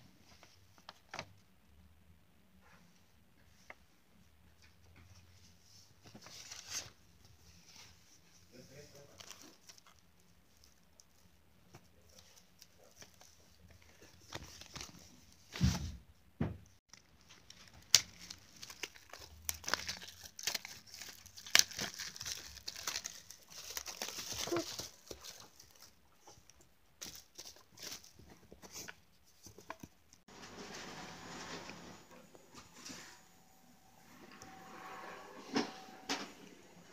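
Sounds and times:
plastic packaging crinkling: 0:16.9 - 0:26.0, 0:27.0 - 0:28.9.

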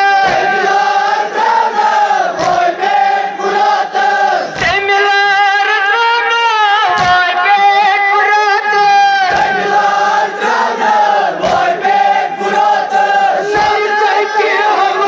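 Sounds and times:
group chanting in unison: 0:00.0 - 0:04.9, 0:09.2 - 0:15.0
lead voice singing lament: 0:00.0 - 0:15.0.

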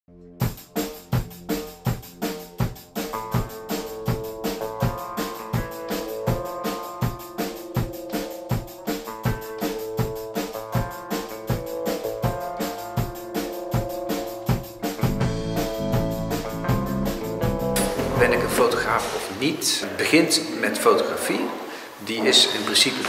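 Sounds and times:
bass: 0:00.0 - 0:07.2, 0:13.6 - 0:19.1
steady drum beat: 0:00.4 - 0:19.3
sustained instrument notes: 0:15.1 - 0:19.1.

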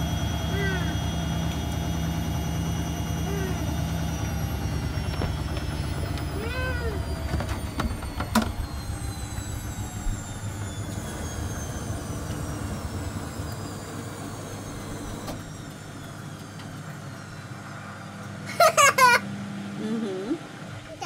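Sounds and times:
faint motor whine: 0:00.0 - 0:21.0
washing machine drum rumbling: 0:04.4 - 0:17.1.

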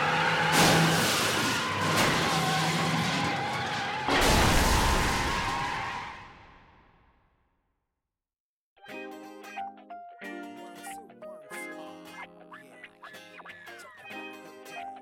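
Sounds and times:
car engine: 0:00.0 - 0:06.6
tyres skidding and squealing: 0:00.0 - 0:06.8.

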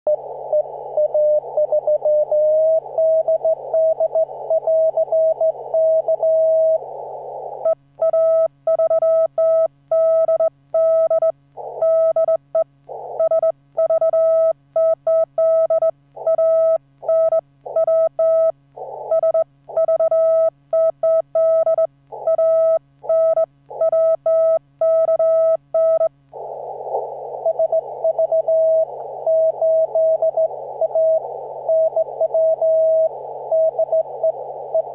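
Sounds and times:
radio hiss: 0:00.1 - 0:08.6, 0:11.5 - 0:12.2, 0:12.8 - 0:13.9, 0:16.1 - 0:20.4, 0:22.0 - 0:23.9, 0:25.7 - 0:34.9
faint low hum: 0:00.1 - 0:34.9
morse code tone: 0:19.1 - 0:26.1.

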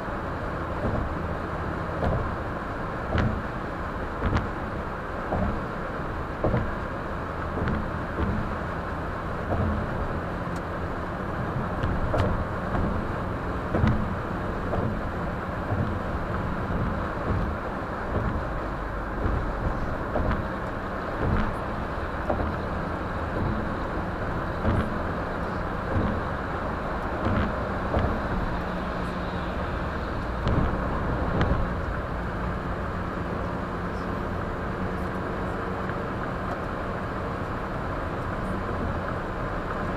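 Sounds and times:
tyre and engine rumble: 0:00.0 - 0:39.9
short thumps: 0:03.1 - 0:03.5, 0:06.4 - 0:06.8, 0:07.5 - 0:08.7, 0:09.4 - 0:10.0, 0:11.4 - 0:26.4, 0:30.3 - 0:31.8.

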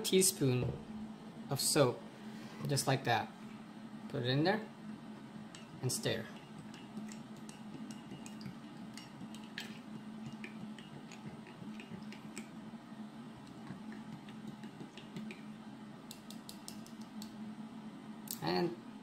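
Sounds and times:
low steady hum: 0:00.0 - 0:19.0
spoon clinking against mug: 0:06.4 - 0:12.5.

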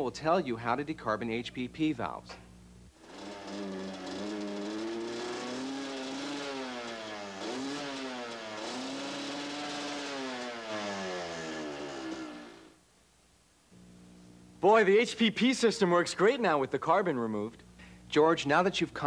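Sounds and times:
motorcycle engine revving: 0:03.0 - 0:12.8.

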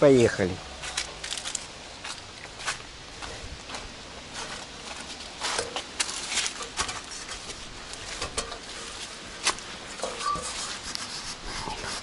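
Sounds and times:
metal ladder clanking: 0:05.4 - 0:10.8.

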